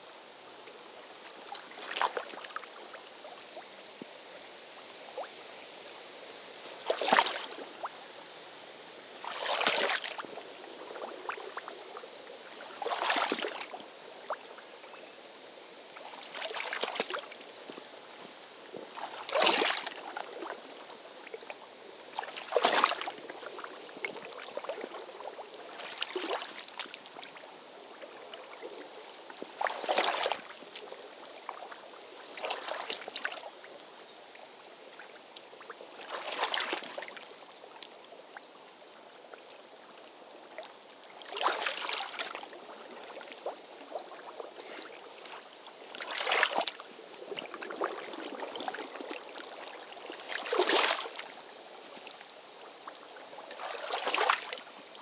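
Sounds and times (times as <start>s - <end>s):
wading steps splashing in stream: 1.2s - 2.8s, 6.6s - 7.7s, 9.2s - 10.4s, 12.5s - 14.4s, 16.0s - 20.7s, 22.1s - 27.4s, 29.4s - 30.9s, 31.5s - 33.6s, 35.9s - 37.3s, 41.2s - 55.0s.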